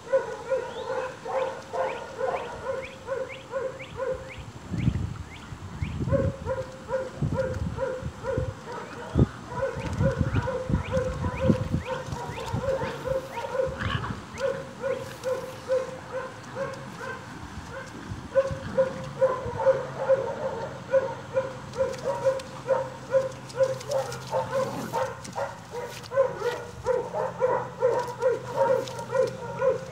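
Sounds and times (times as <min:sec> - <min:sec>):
puppies yipping: 0:08.3 - 0:17.2, 0:17.8 - 0:29.9
puppies growling: 0:09.1 - 0:17.3, 0:18.4 - 0:29.9.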